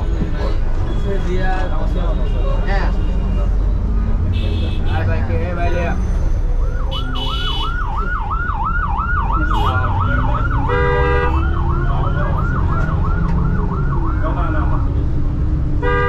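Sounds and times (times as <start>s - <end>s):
bus and traffic rumble: 0.0s - 16.0s
vehicle horn honking: 4.3s - 5.1s, 6.9s - 7.7s, 10.7s - 11.4s, 15.8s - 16.0s
siren yelping: 6.5s - 14.6s.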